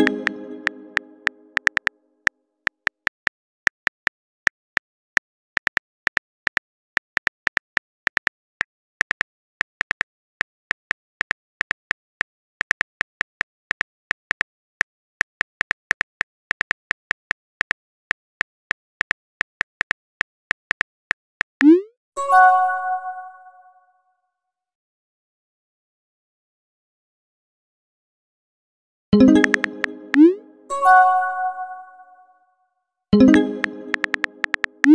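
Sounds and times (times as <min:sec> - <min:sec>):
phone keyboard key clicks: 0:33.7 - 0:34.9.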